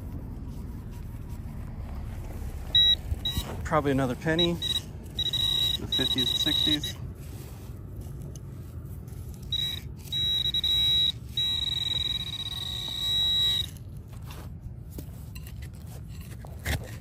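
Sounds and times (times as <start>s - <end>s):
metal detector high-pitched buzz: 2.8s - 3.5s, 4.3s - 7.0s, 9.4s - 13.8s.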